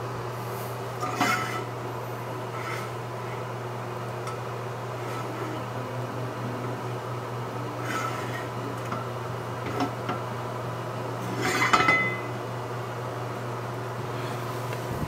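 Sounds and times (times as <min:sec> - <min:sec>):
fan humming: 0:00.0 - 0:15.0
skillet scraping on burner grate: 0:00.4 - 0:05.8, 0:07.7 - 0:10.3, 0:11.1 - 0:12.3.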